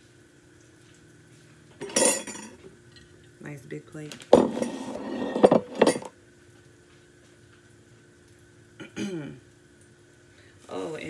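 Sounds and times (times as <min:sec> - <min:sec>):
plates clattering and clinking: 0:01.8 - 0:02.6, 0:04.3 - 0:06.2.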